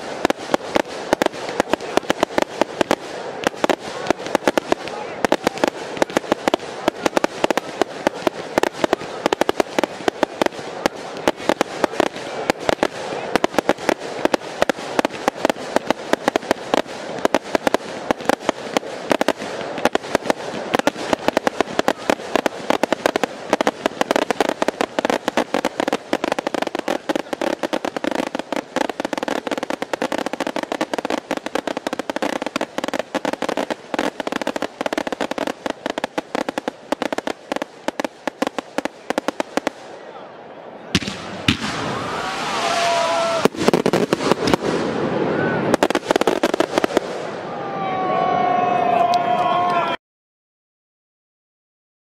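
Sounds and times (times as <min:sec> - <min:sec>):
fireworks bangs and crackle: 0:00.0 - 0:40.2, 0:40.8 - 0:48.0.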